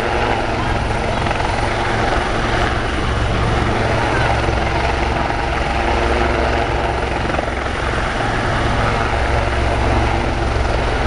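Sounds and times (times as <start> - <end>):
helicopter rotor and engine roar: 0.0 - 11.0
low droning rotor hum: 0.0 - 11.0.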